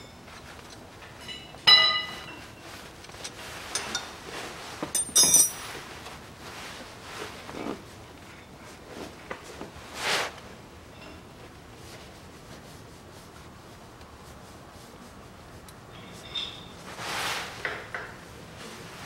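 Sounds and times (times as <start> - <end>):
metal tools clinking: 3.2 - 4.2, 4.8 - 5.8.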